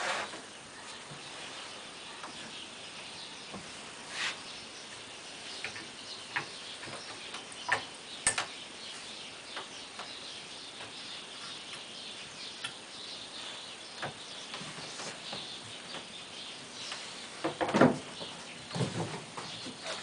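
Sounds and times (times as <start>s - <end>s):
light wooden clicks and knocks: 16.9s - 20.0s.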